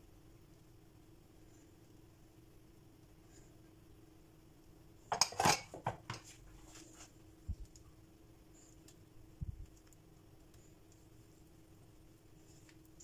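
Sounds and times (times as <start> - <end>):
utensils clinking against dishes: 5.1 - 6.0.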